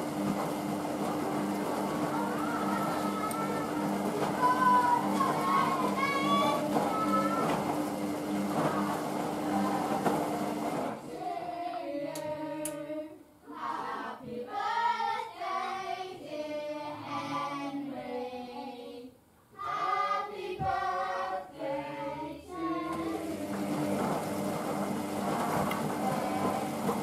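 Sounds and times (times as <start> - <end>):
washing machine drum turning: 0.0 - 11.0, 22.8 - 27.0.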